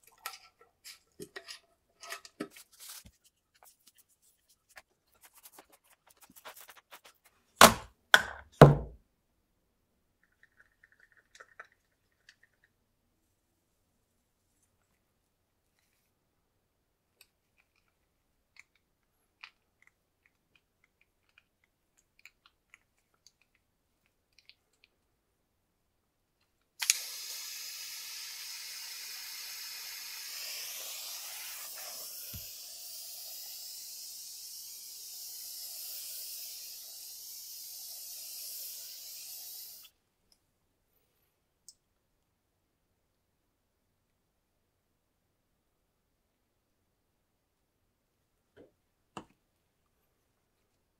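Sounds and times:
gas torch hissing: 0:26.8 - 0:39.9.

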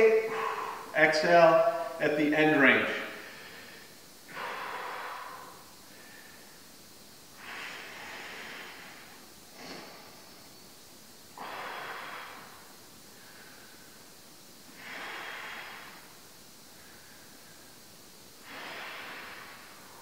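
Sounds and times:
man breathing out hard: 0:00.2 - 0:01.0, 0:03.1 - 0:06.5.

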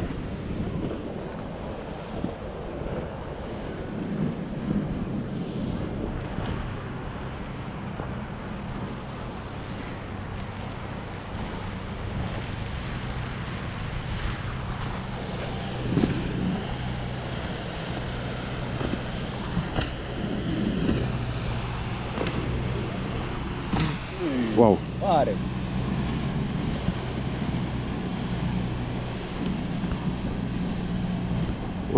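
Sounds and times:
motorboat engine hum: 0:00.0 - 0:31.9
wind buffeting microphone: 0:00.0 - 0:31.9.

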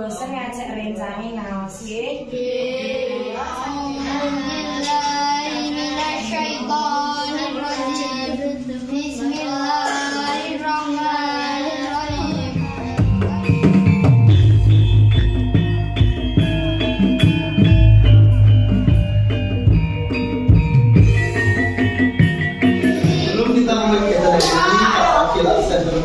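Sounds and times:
child singing: 0:02.3 - 0:13.9, 0:22.9 - 0:23.6
music with heavy drumming: 0:12.1 - 0:24.3.

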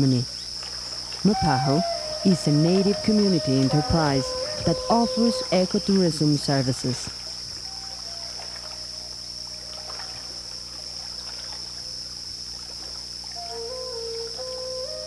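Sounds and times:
faint water wash: 0:00.0 - 0:14.2
high-pitched insect drone: 0:00.0 - 0:15.0
faint held musical notes: 0:01.3 - 0:06.8.

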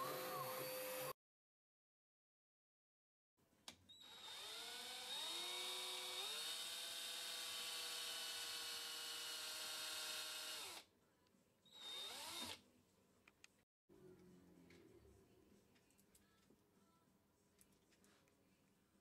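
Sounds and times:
electric drill motor whine: 0:00.0 - 0:01.1, 0:03.9 - 0:10.8, 0:11.7 - 0:12.6.

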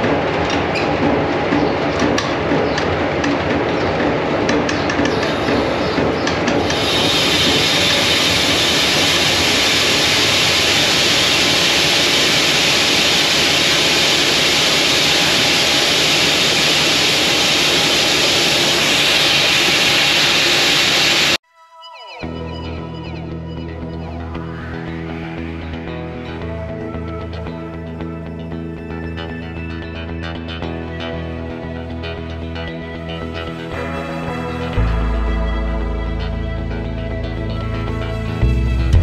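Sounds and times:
falling grain rushing hiss: 0:06.6 - 0:21.4.

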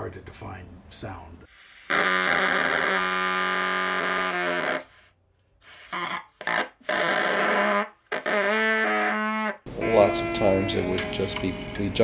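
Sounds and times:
trumpet held notes: 0:06.9 - 0:12.0.

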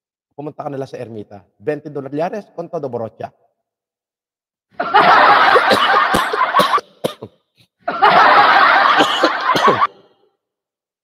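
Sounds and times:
man laughing hard: 0:04.8 - 0:07.0, 0:07.9 - 0:10.1.

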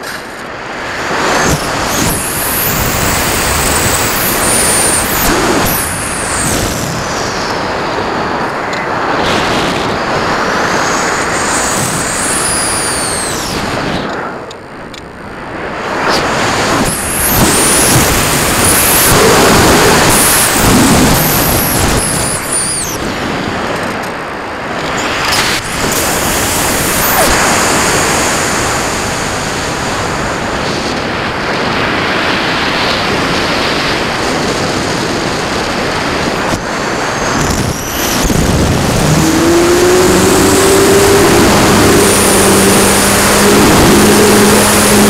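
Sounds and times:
electric motor propeller hum: 0:00.0 - 0:07.8, 0:09.8 - 0:15.2, 0:16.0 - 0:29.8, 0:36.2 - 0:45.0
wind rushing over microphone: 0:00.0 - 0:45.0.

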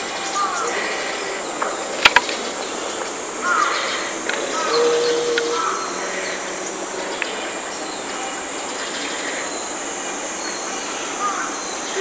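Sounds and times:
high-pitched insect drone: 0:00.0 - 0:12.0.

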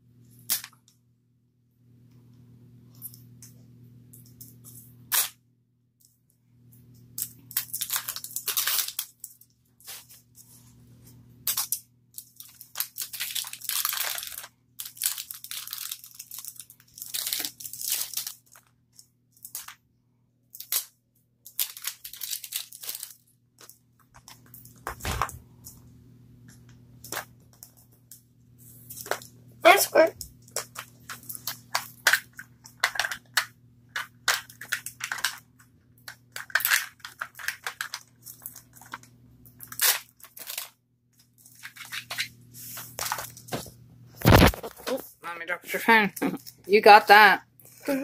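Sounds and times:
plastic wrapping crinkling: 0:07.1 - 0:10.7, 0:11.4 - 0:19.8, 0:20.5 - 0:25.8, 0:30.2 - 0:45.0.

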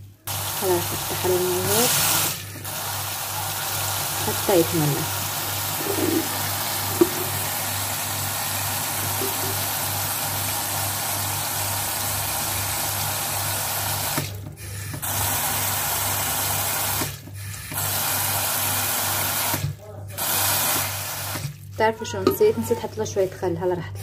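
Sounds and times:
tap water pouring into jar: 0:05.8 - 0:07.4.

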